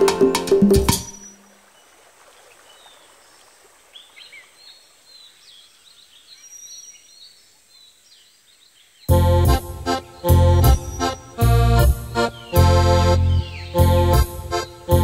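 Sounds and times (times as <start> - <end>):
loud music: 0.0 - 1.1, 9.1 - 15.0
small birds chirping: 0.9 - 15.0.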